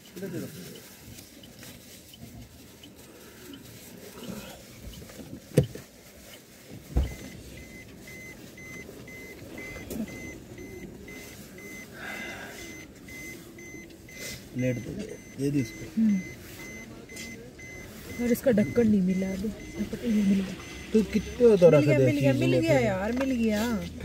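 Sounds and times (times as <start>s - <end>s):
car warning chime beeping: 0.0s - 24.0s
rustling of wrappers and clothing: 0.0s - 24.0s.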